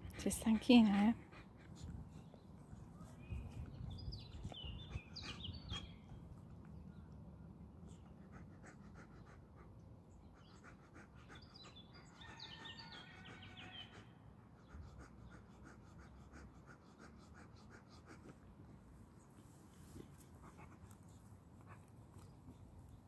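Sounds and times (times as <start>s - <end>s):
dog panting rapidly: 0.0s - 2.4s, 3.5s - 5.9s, 8.2s - 18.5s
small bird chirping: 2.2s - 6.2s.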